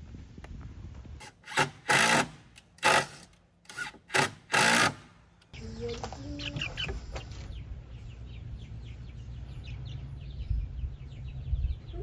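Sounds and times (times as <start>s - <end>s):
young chickens peeping: 5.3s - 12.0s.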